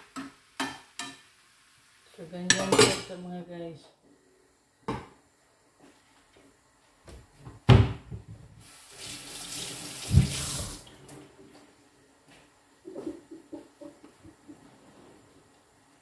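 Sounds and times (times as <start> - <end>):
tap running into a sink: 9.0 - 10.9.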